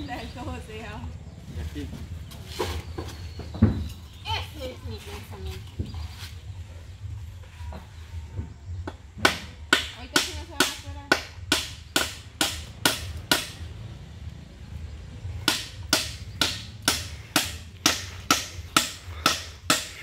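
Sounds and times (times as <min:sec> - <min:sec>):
hammer striking a nail into wood: 0:08.8 - 0:13.6, 0:15.4 - 0:20.0.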